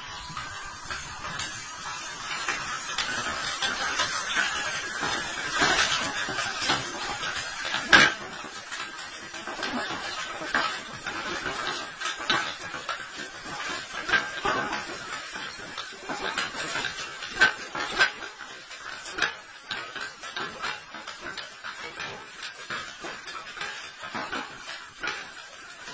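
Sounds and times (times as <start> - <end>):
tyres crunching over gravel: 0.0 - 20.2.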